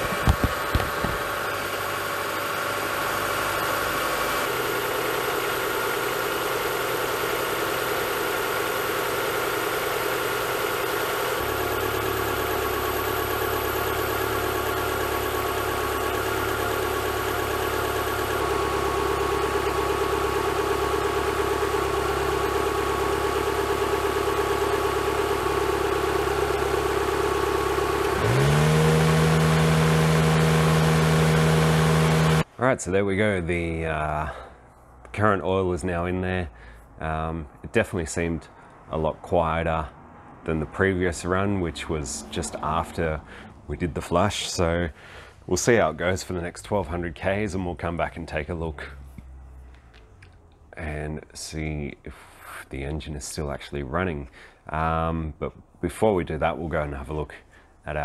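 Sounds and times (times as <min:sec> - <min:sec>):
car engine idling: 0:00.0 - 0:32.5, 0:38.4 - 0:51.0
louder steady hum: 0:00.0 - 0:32.5.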